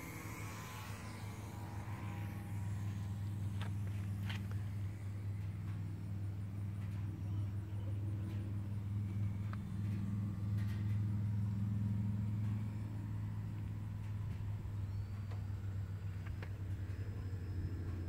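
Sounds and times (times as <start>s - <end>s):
car engine idling: 0.0s - 17.4s.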